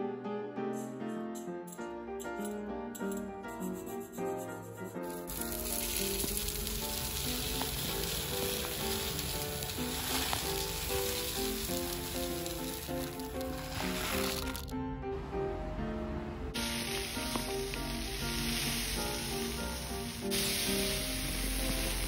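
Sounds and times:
rice pouring into plastic container: 5.1 - 14.7, 16.6 - 22.0.

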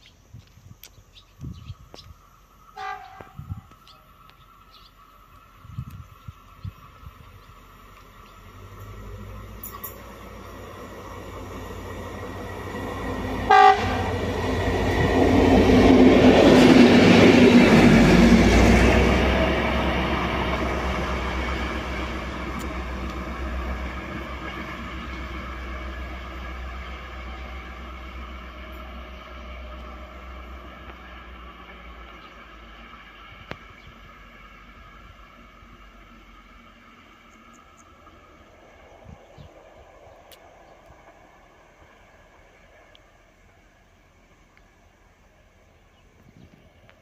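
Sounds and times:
train rumbling past: 0.0 - 47.0
train horn blast: 2.8 - 3.6, 13.4 - 14.4.

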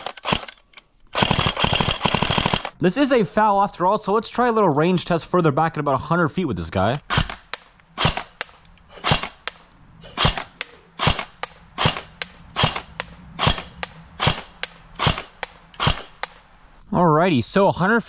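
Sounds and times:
airsoft rifle shots cracking: 1.2 - 2.8, 7.0 - 16.8.

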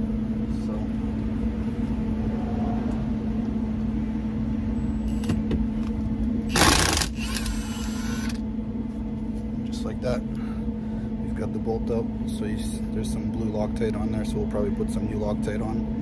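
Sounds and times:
steady low hum: 0.0 - 16.0
impact wrench hammering: 6.5 - 8.4
wrench whirring: 6.5 - 8.4.

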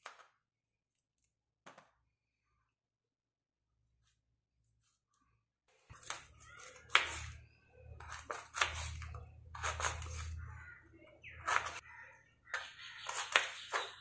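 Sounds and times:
knife cutting on wooden board: 5.9 - 7.4, 8.0 - 10.4, 11.4 - 11.8, 12.5 - 14.0.

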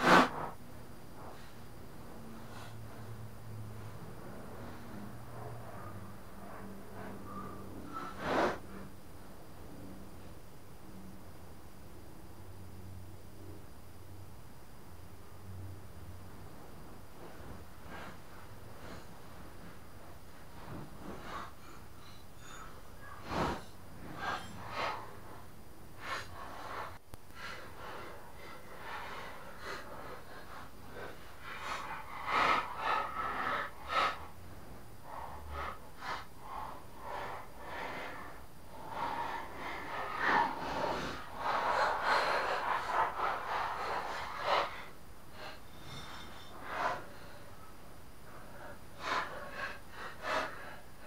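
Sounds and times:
metal scraping: 20.4 - 27.0, 45.4 - 47.5.

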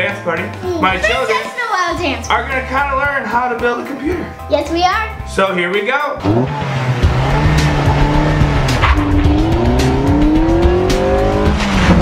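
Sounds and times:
music playing: 0.0 - 12.0
car engine revving: 6.2 - 12.0.

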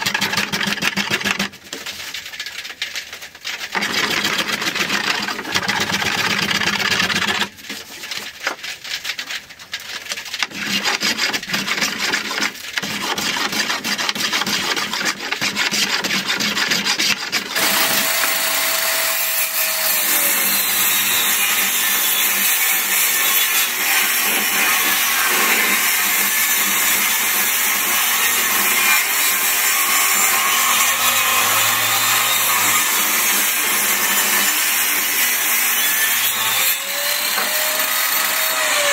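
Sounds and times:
table saw ripping a board: 0.0 - 1.8, 3.4 - 9.0, 9.8 - 38.9
wooden board scraping: 0.0 - 20.0, 36.2 - 38.9.

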